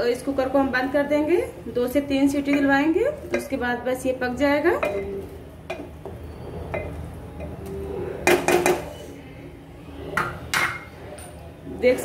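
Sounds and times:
wooden spoon stirring curry: 0:01.9 - 0:07.8
spoon knocking against pot: 0:02.4 - 0:03.6, 0:04.7 - 0:07.6.

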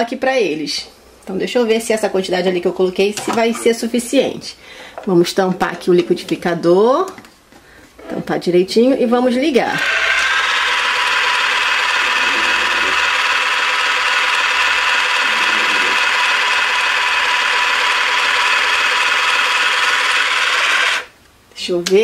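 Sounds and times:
toy blender whirring: 0:09.7 - 0:21.2.

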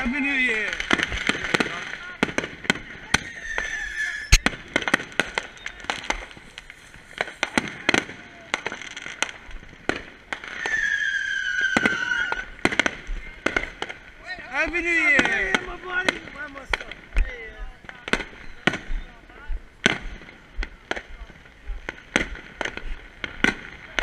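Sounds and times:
fireworks bangs and pops: 0:00.0 - 0:24.0
high falling whistle: 0:03.2 - 0:04.5, 0:10.6 - 0:12.4.

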